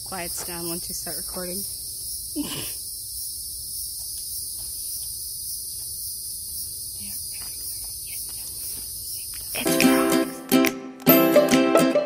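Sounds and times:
insects shrilling: 0.8s - 10.4s
person's falling vocal sound: 2.4s - 2.8s.

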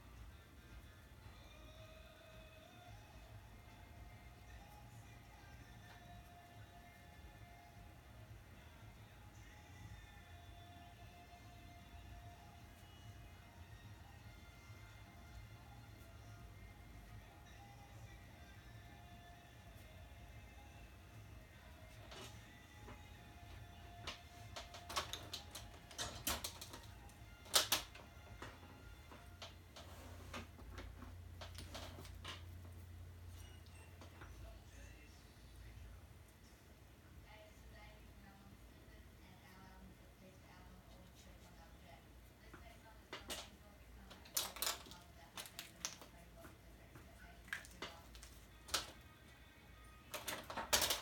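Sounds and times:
pens clicking and tapping on desk: 24.0s - 28.6s, 50.1s - 51.0s.

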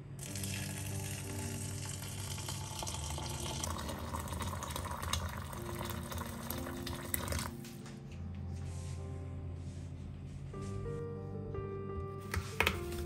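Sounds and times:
water pouring into glass bowl: 0.2s - 7.5s.

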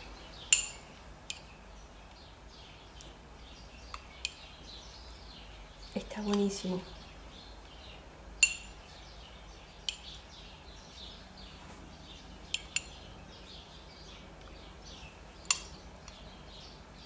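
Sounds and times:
small birds chirping: 0.0s - 17.0s
metal spoon clinking against glass: 8.4s - 8.8s.

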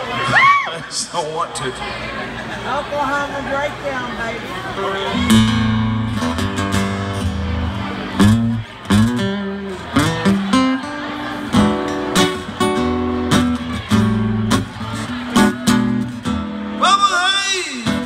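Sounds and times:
acoustic guitar solo: 4.7s - 18.0s.

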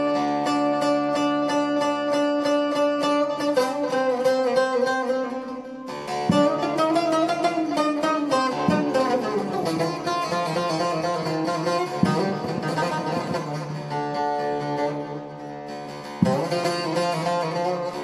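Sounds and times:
long-necked lute plucked notes: 0.0s - 18.0s
lute strummed strokes: 0.0s - 18.0s.

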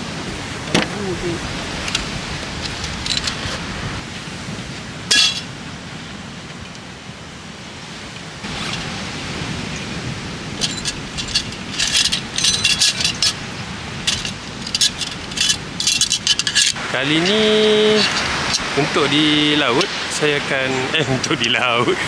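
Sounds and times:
wind noise: 0.0s - 22.0s
small hard objects clinking: 10.6s - 13.4s, 14.0s - 16.8s.

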